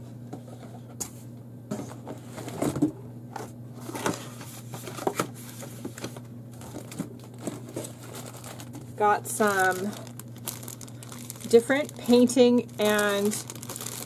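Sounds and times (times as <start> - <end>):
steady low hum: 0.0 - 14.0
packaging rustling: 4.8 - 14.0.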